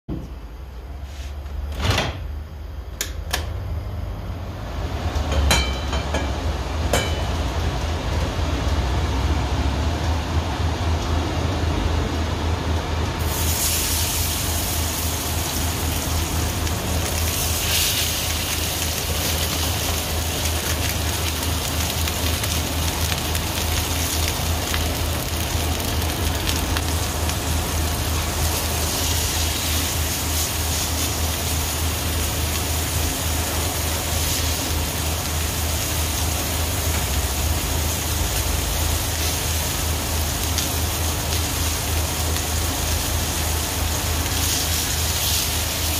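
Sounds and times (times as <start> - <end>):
steak sizzling in a pan: 13.2 - 45.9.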